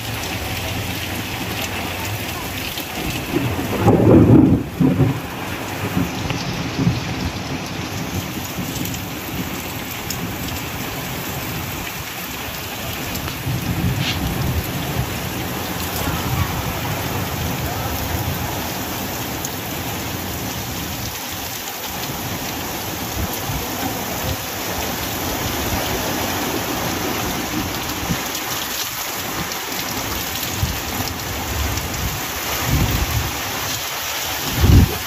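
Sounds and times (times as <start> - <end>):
truck driving through water: 0.0 - 6.5, 14.3 - 34.9
heavy rain pouring: 0.0 - 35.0.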